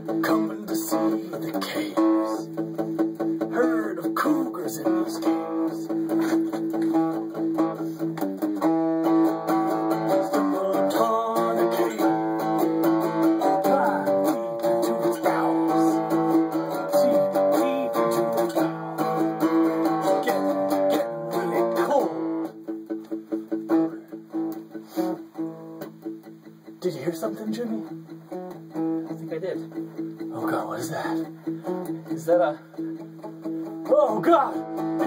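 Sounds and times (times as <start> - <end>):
acoustic guitar: 0.0 - 35.0.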